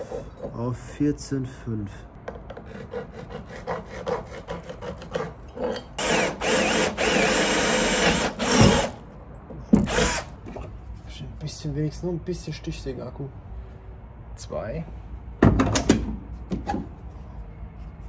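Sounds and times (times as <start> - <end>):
cordless power tool running: 6.0 - 9.0.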